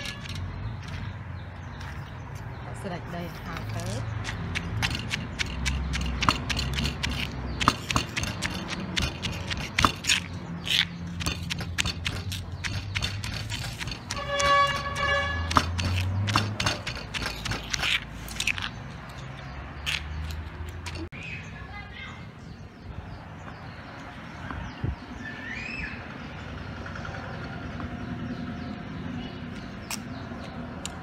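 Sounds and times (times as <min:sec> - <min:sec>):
pestle pounding in stone mortar: 0:04.1 - 0:18.0.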